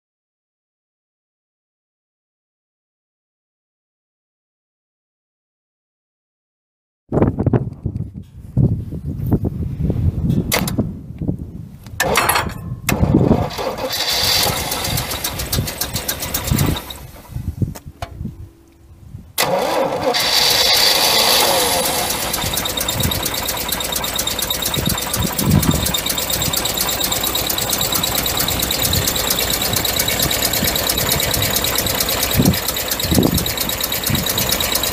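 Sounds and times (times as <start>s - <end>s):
engine cranking: 12.0s - 17.5s, 19.4s - 34.9s
engine idling: 13.1s - 17.5s, 19.4s - 34.9s.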